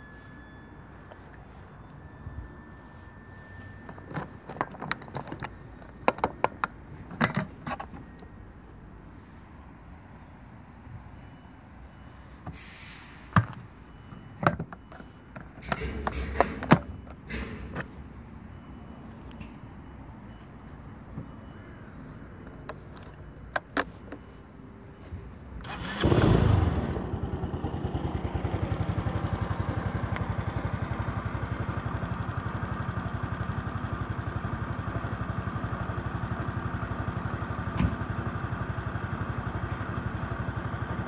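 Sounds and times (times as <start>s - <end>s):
scooter engine starting and idling: 25.6s - 41.0s.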